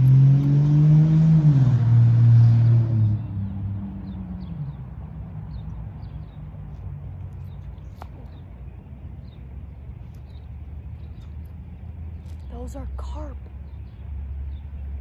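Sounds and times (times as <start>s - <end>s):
car engine passing: 0.0s - 7.5s
low rumble of traffic: 0.0s - 15.0s
bird chirping: 3.0s - 15.0s.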